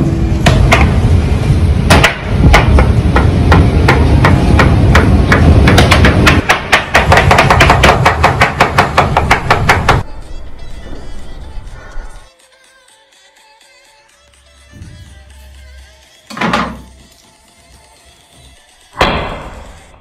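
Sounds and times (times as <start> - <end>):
low rumble: 0.0 - 6.4.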